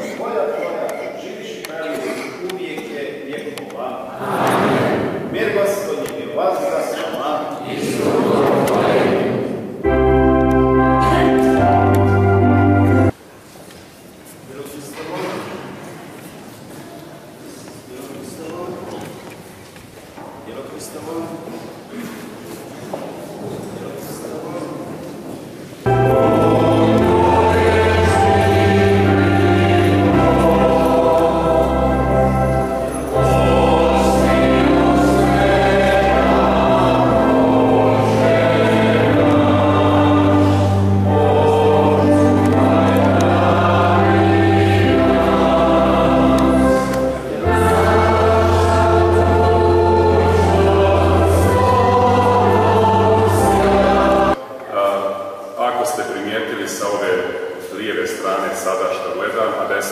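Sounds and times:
choir singing a hymn: 4.1 - 5.6, 7.5 - 13.2, 25.8 - 55.4
sustained low instrumental notes: 9.8 - 13.1, 25.9 - 54.4.

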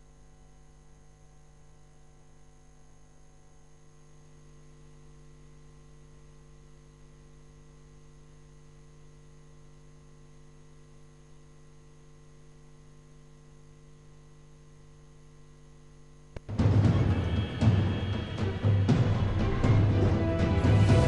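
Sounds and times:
faint mains hum with hiss: 0.0 - 21.0.

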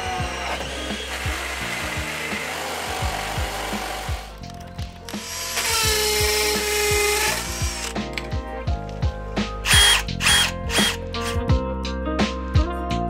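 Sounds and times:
power drill boring into wall: 0.0 - 4.4, 5.1 - 8.3, 9.6 - 11.4
drill-driver driving screw: 0.0 - 8.3, 9.6 - 11.4
background music: 0.0 - 13.0.

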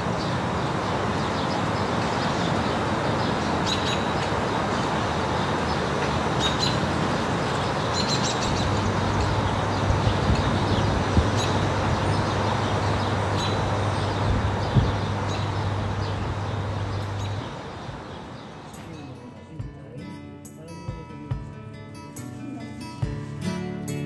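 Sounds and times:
small birds chirping: 0.0 - 24.0
steady rush of background noise: 0.0 - 24.0
low steady hum: 8.5 - 19.9.

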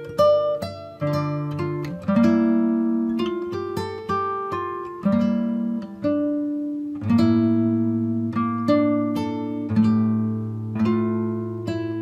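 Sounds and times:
acoustic guitar strumming chords: 0.0 - 12.0.

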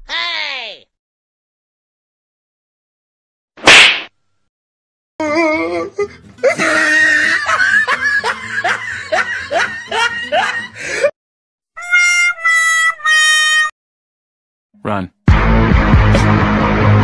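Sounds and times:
person laughing hard: 6.4 - 11.1.

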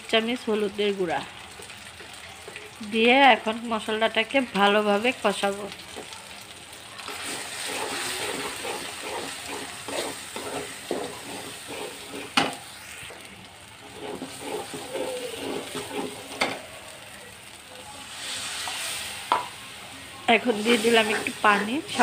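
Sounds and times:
onions sizzling in hot oil: 0.0 - 22.0
metal spatula scraping pan: 7.1 - 12.8, 13.8 - 16.6.

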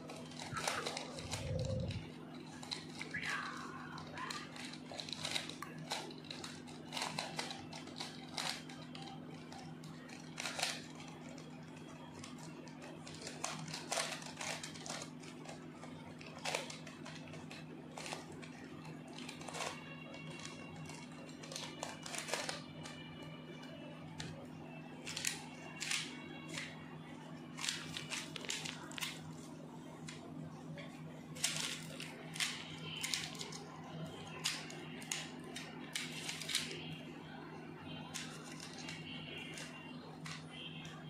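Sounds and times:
puzzle cube clicking and rattling: 0.0 - 23.0, 25.0 - 26.8, 27.5 - 29.3, 31.4 - 36.8, 38.0 - 40.4.

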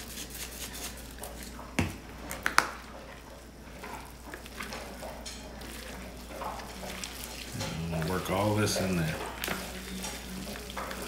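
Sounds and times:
wet squishing of pulled pork: 2.3 - 11.0.

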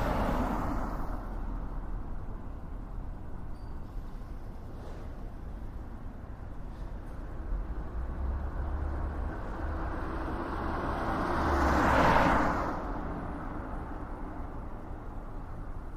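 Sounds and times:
vehicle passing by: 7.6 - 14.0.

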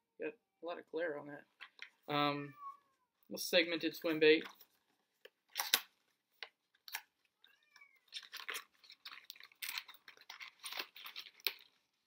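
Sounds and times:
cat meowing faintly: 2.4 - 3.1, 7.5 - 8.1
plastic packaging crackling: 5.5 - 12.0.

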